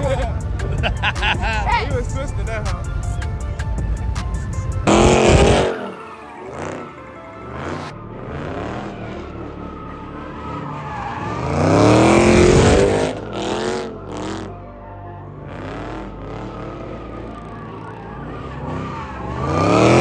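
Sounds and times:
car engine revving: 0.0s - 14.6s, 15.3s - 20.0s
tyres squealing: 10.0s - 13.2s.

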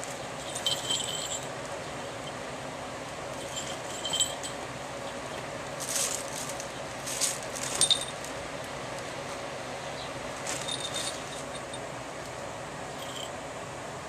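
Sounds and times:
small bells jingling: 0.4s - 1.5s, 3.4s - 4.6s, 7.7s - 8.3s, 10.5s - 11.8s, 13.0s - 13.4s
plastic wrapping rustling: 5.8s - 8.4s, 10.4s - 11.4s.

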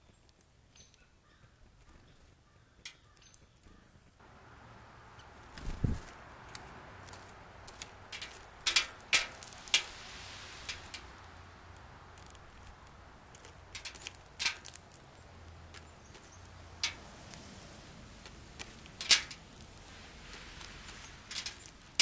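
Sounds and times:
bird landing thump: 5.5s - 6.1s.

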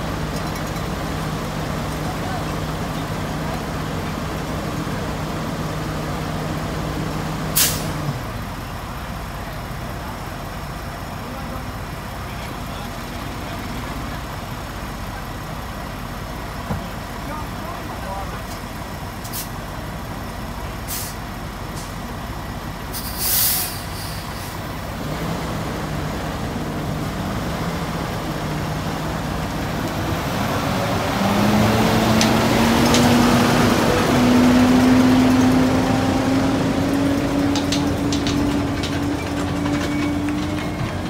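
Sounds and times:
truck diesel engine droning: 0.0s - 41.0s
air brakes hissing: 7.6s - 8.0s, 20.9s - 21.2s, 22.9s - 24.6s.

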